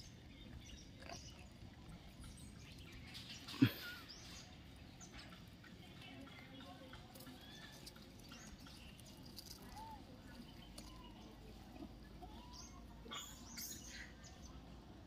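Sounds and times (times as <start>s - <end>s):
bird chirps: 6.3s - 14.6s.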